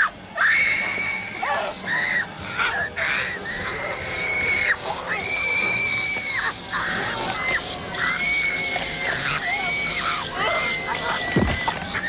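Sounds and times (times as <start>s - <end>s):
woman screaming in terror: 0.0s - 2.9s.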